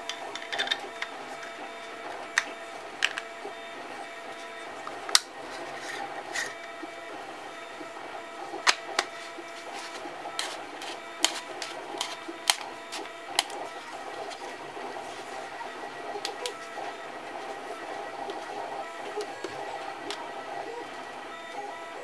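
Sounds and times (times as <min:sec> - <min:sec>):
plastic and metal parts clicking: 0:00.0 - 0:01.5, 0:02.3 - 0:03.3, 0:04.8 - 0:06.6, 0:10.4 - 0:13.6.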